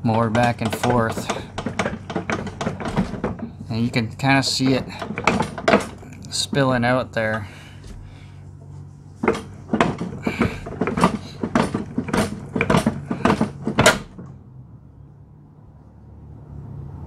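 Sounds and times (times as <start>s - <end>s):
push mower clunking and rattling: 0.0s - 14.4s.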